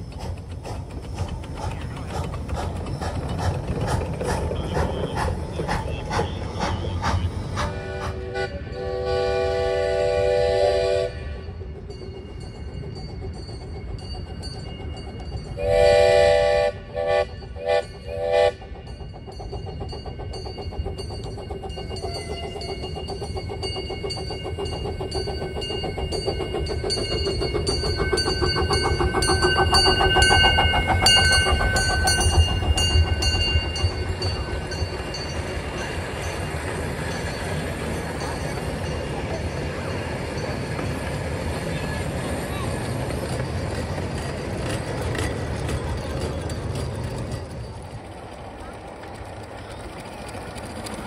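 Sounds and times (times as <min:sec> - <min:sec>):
train running clatter: 0:00.0 - 0:51.0
steam whistle blasts: 0:07.7 - 0:11.4, 0:15.6 - 0:18.7.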